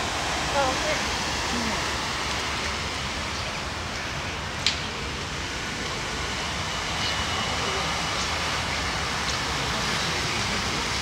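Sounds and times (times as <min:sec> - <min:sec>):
steady rain falling: 0:00.0 - 0:06.8.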